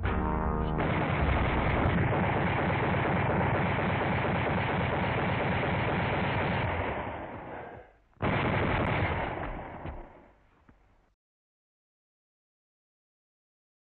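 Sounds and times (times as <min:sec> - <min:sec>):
trumpet-led brass music: 0:00.0 - 0:01.9
machine gun automatic fire: 0:00.8 - 0:07.3, 0:08.2 - 0:10.2.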